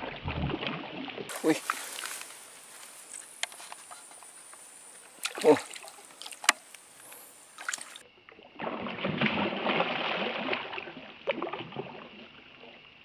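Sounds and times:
sharp splash: 5.2s - 6.6s, 7.5s - 8.0s, 8.6s - 12.2s
fish splashing at water surface: 5.2s - 8.0s, 8.6s - 12.1s.

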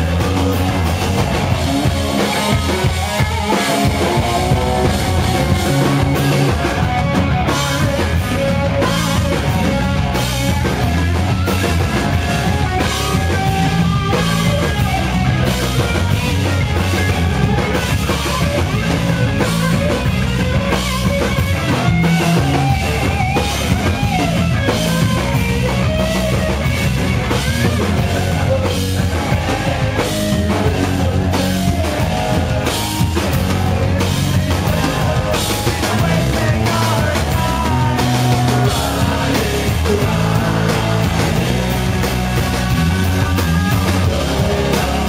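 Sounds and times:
distorted electric guitar: 0.0s - 45.0s
drum kit: 0.0s - 45.0s
person singing: 28.0s - 42.8s, 44.0s - 45.0s.

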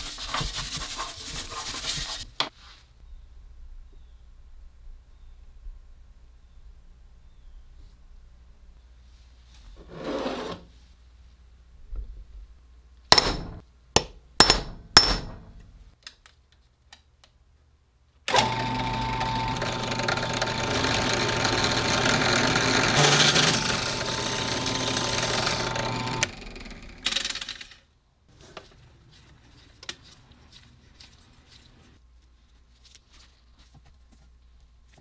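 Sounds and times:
center punch tapping metal pipe: 13.1s - 15.7s
drill press humming: 18.3s - 27.0s.

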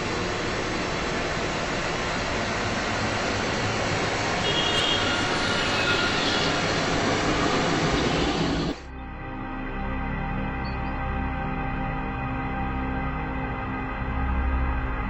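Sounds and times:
road traffic noise: 0.0s - 8.8s.

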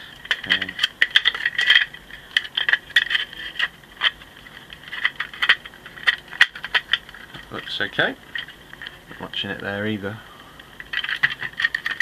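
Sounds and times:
plastic toy parts clicking: 4.9s - 7.2s, 10.8s - 12.0s.

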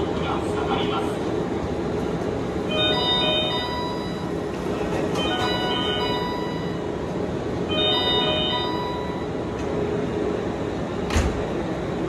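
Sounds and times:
rumble of trains: 0.0s - 12.0s
electronic chime tones: 5.2s - 6.8s, 7.7s - 9.3s.

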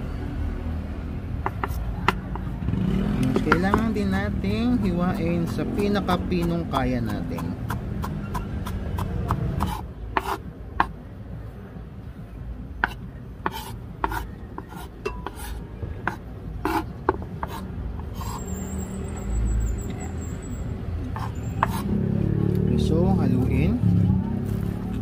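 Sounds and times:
knife scraping wooden board: 5.1s - 10.9s, 12.8s - 18.5s, 21.1s - 21.9s.

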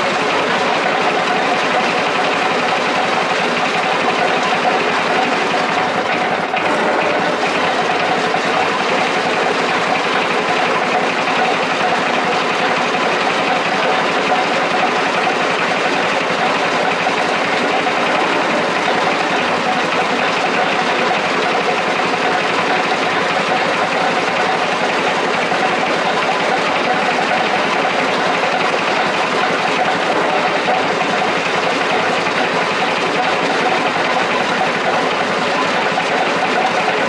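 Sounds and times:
pulping machine rattling: 0.0s - 37.0s
small petrol engine running: 0.0s - 37.0s.

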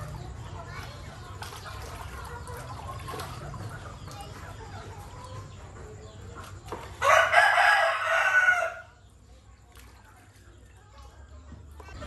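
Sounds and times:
rooster crowing: 7.0s - 8.9s.

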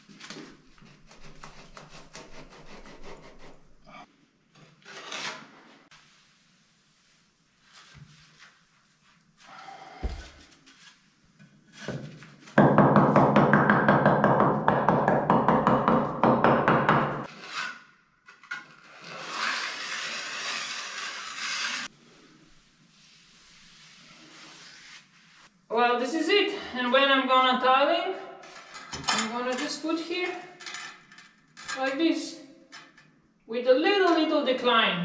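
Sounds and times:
trowel scraping on wet mortar: 18.7s - 21.9s.

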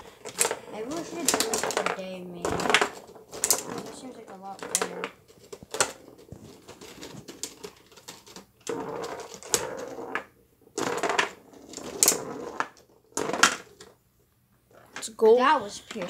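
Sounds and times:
foosball rods knocking and rattling: 0.0s - 14.0s
foosball players striking ball: 0.3s - 6.0s, 8.7s - 13.7s.

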